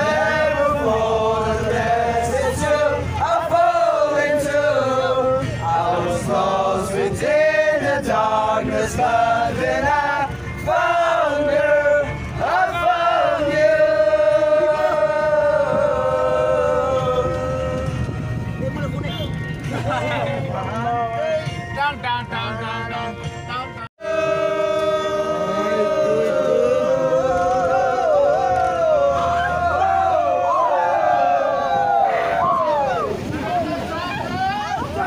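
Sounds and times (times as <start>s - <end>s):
men singing in unison: 0.0s - 18.1s, 24.0s - 30.7s
moving bus rumble: 0.0s - 35.0s.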